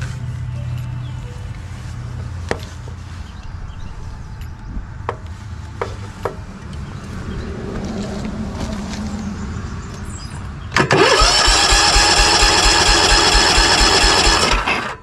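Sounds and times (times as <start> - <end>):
starter cranking mower engine: 10.8 - 15.0.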